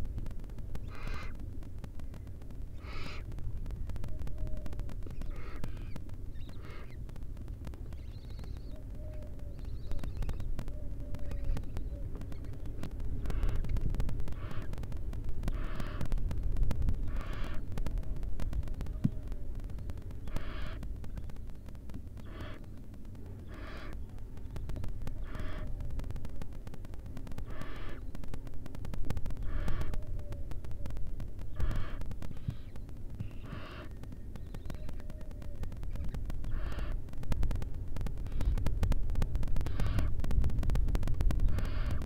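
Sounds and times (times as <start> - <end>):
low rumble: 0.0 - 42.0
owls hissing snore calls: 0.8 - 1.4, 2.8 - 3.3, 5.2 - 7.0, 13.2 - 13.7, 14.3 - 14.8, 15.5 - 16.1, 17.0 - 17.7, 20.2 - 20.8, 22.2 - 22.7, 23.4 - 24.0, 25.2 - 25.7, 27.4 - 28.0, 29.4 - 30.0, 31.5 - 33.9, 36.5 - 37.0, 39.6 - 40.1, 41.5 - 42.0.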